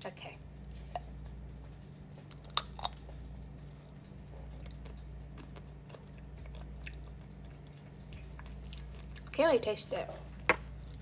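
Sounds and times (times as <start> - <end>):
faint chewing: 0.7 - 9.4.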